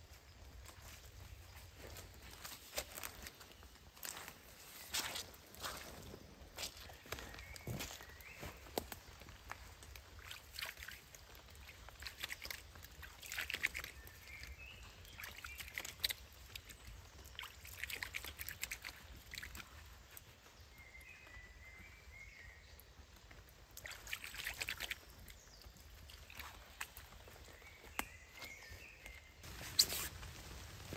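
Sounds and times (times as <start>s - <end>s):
hands splashing water in stream: 8.6s - 19.7s, 23.7s - 28.4s.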